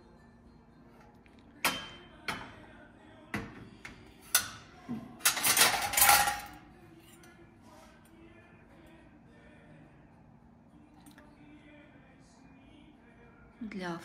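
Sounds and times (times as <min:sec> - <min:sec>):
rattling clatter of silverware: 0:04.3 - 0:07.4.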